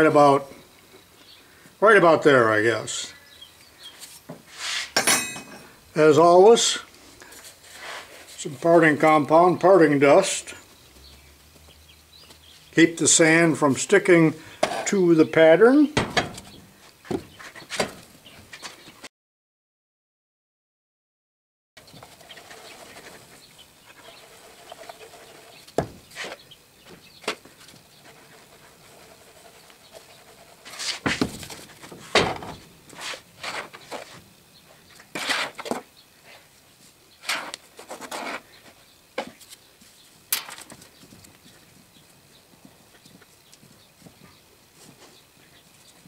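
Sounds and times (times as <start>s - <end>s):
sand scraping and rustling: 4.0s - 5.0s, 6.0s - 11.2s, 21.8s - 36.4s, 37.2s - 41.1s.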